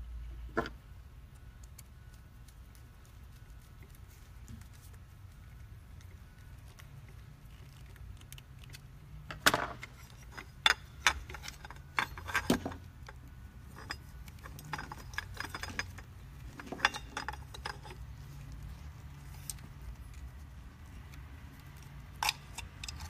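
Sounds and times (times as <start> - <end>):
sharp metallic clicks and clinks: 9.4 - 18.0, 21.1 - 23.0.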